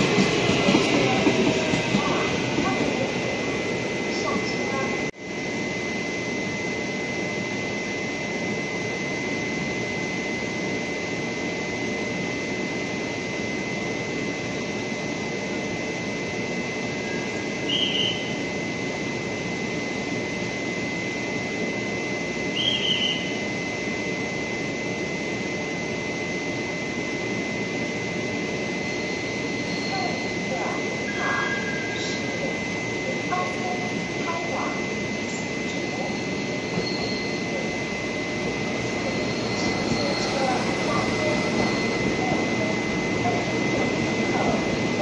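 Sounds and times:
electric train rumble and whine: 0:00.0 - 0:45.0
high squeals: 0:35.3 - 0:37.6, 0:39.0 - 0:42.6.

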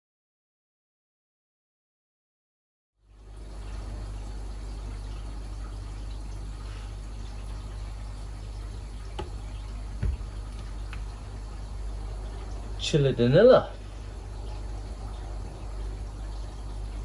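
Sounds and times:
low electrical hum: 0:03.0 - 0:17.0
light knocks: 0:09.2 - 0:09.4, 0:10.0 - 0:11.0.

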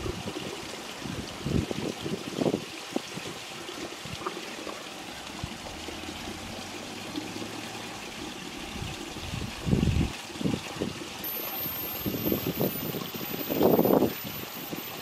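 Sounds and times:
running water rushing: 0:00.0 - 0:15.0.

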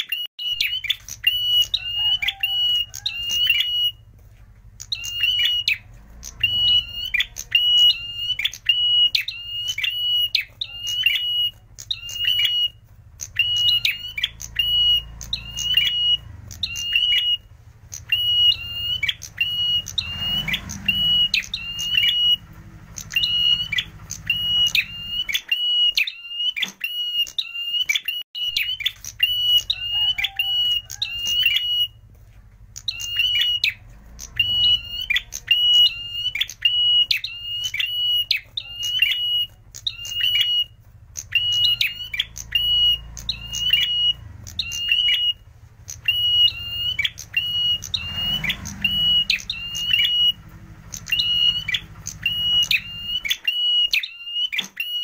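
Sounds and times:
bird singing sharp chip notes: 0:00.0 - 0:55.0.

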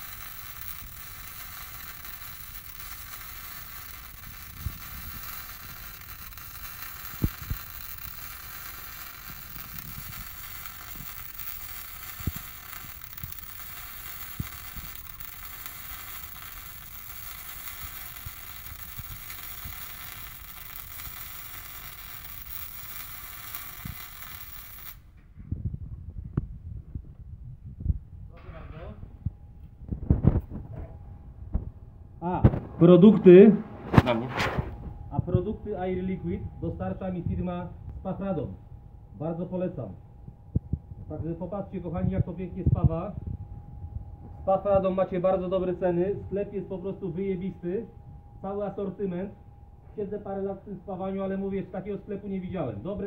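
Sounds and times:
torch and workpiece clattering: 0:00.0 - 0:25.0
welding arc hissing and popping: 0:00.0 - 0:25.1.

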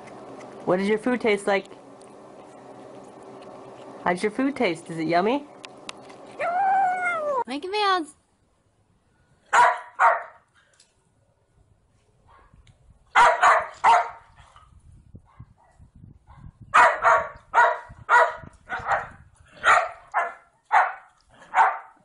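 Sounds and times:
dog barking: 0:09.5 - 0:10.4, 0:12.3 - 0:12.6, 0:13.2 - 0:14.2, 0:16.3 - 0:22.0.

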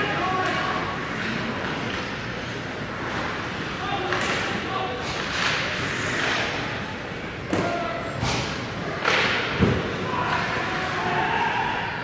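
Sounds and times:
distant shouting voices: 0:10.0 - 0:12.0.

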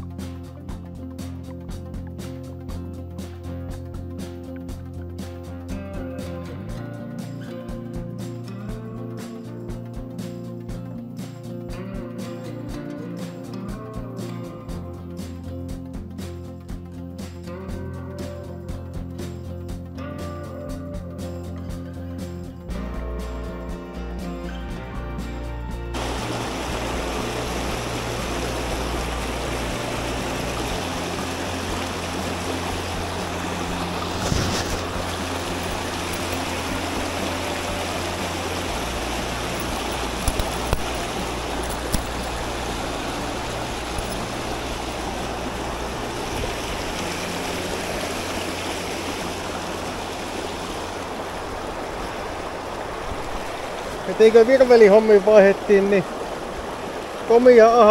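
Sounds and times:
river rapids rushing over rocks: 0:26.0 - 0:57.9.

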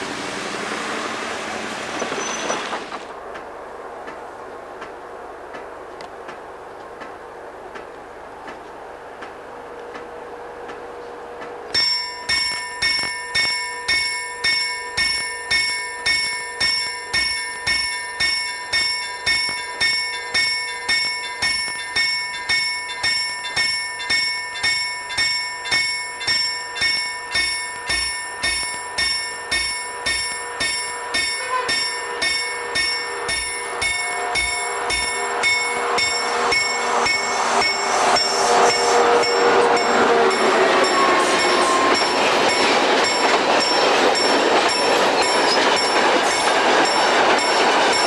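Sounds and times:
level crossing warning bell: 0:11.7 - 0:48.0.

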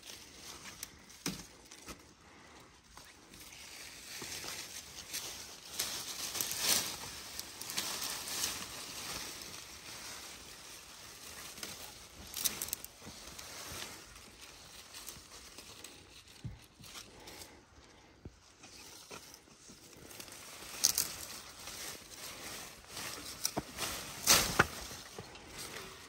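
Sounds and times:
rustling and scuffing: 0:03.2 - 0:17.6, 0:18.2 - 0:26.0.

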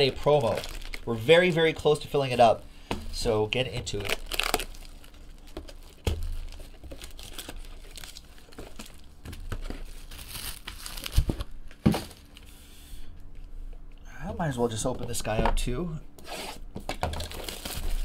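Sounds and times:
plastic wrap and foil crinkling: 0:00.0 - 0:02.6, 0:03.2 - 0:12.6, 0:16.9 - 0:18.0.

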